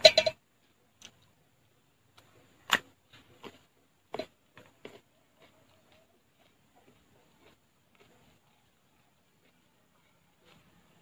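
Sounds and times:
chewing clicks and smacks: 0:02.2 - 0:11.0.

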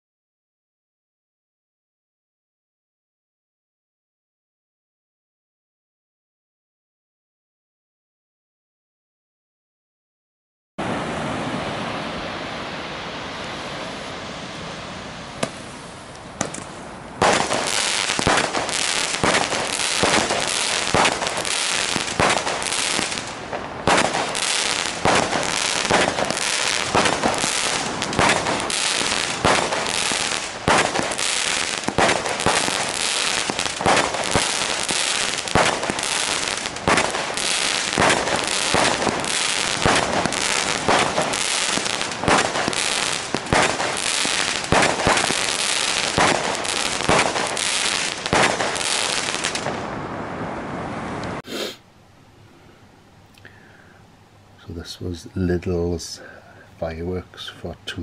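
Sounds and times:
firework shots: 0:15.4 - 0:15.8, 0:16.4 - 0:50.2
firework hissing: 0:17.2 - 0:49.9, 0:51.4 - 0:51.8.

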